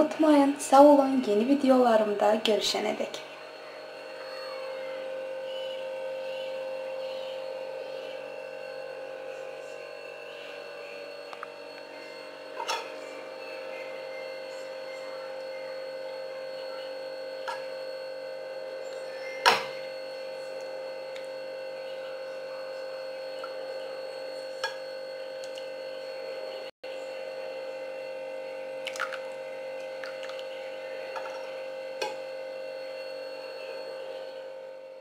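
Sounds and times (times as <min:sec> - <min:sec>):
electrical hum: 0:00.0 - 0:35.0.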